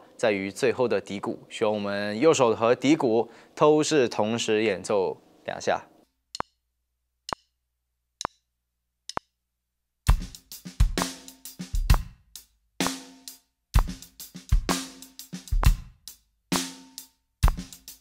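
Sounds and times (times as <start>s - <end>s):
count-in click: 9.1s - 9.3s
drum kit shuffle groove: 10.1s - 18.0s.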